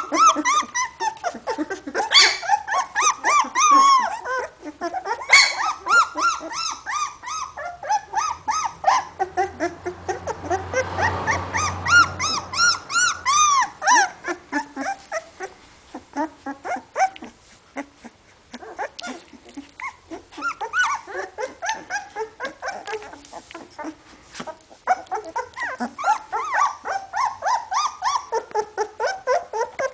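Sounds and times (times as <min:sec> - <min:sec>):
puppies whimpering and squeaking: 0:00.0 - 0:29.9.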